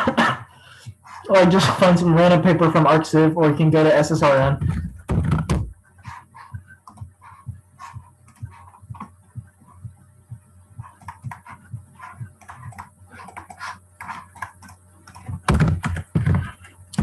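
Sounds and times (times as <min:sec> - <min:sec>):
faint low hum: 0:00.0 - 0:17.0
keyboard and mouse clicks: 0:11.0 - 0:17.0.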